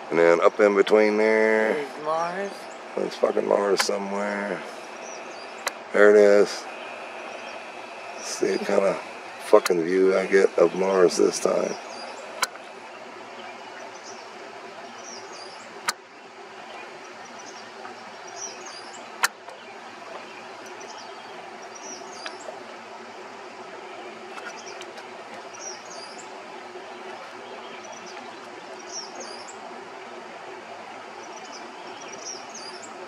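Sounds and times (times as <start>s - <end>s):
steady background hum: 0.0s - 33.0s
sharp clicks: 5.6s - 5.8s, 9.6s - 9.8s, 12.3s - 12.7s.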